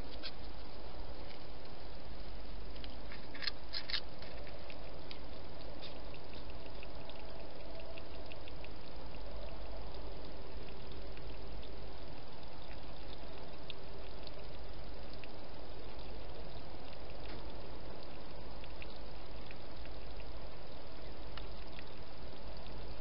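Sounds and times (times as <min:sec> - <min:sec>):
steady hiss: 0:00.0 - 0:23.0.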